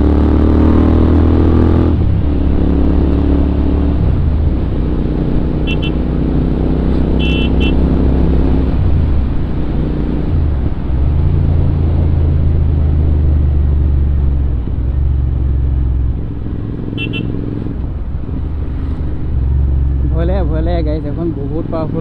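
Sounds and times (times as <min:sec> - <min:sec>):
motorcycle engine running: 0:05.3 - 0:07.9, 0:14.9 - 0:17.8
short horn beeps: 0:05.7 - 0:06.0, 0:07.2 - 0:07.8, 0:17.0 - 0:17.4.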